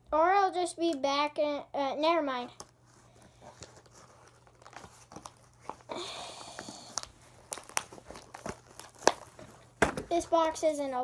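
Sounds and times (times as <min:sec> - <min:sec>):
packaging crinkling: 0:02.6 - 0:10.6
packaging tearing: 0:03.3 - 0:09.7.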